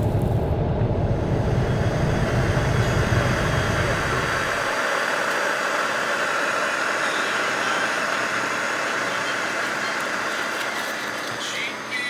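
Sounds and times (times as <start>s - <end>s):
steady rushing noise: 0.0s - 9.3s.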